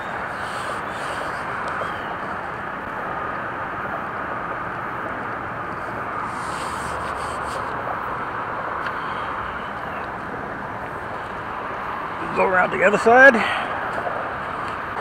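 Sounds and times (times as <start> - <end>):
hand rubbing tape: 6.3 - 7.8.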